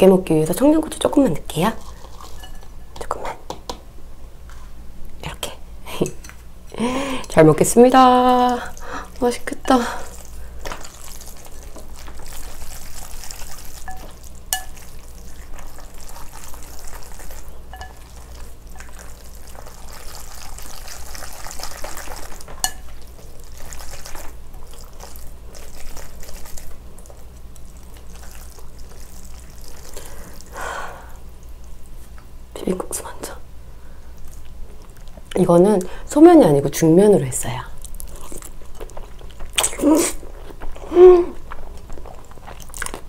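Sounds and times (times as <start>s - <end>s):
wet sticky squelching of noodles: 8.4s - 30.6s.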